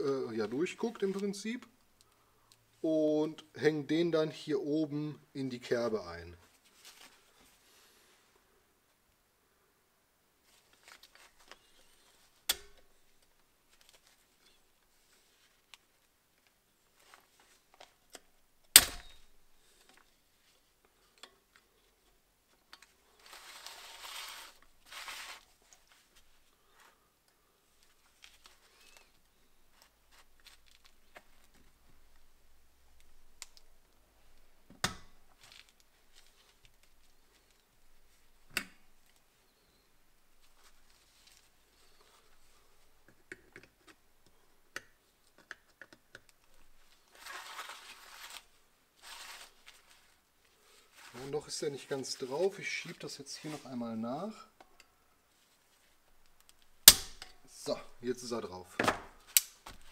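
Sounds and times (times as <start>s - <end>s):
scratchy handling noise: 22.7s - 27.0s, 45.3s - 53.7s.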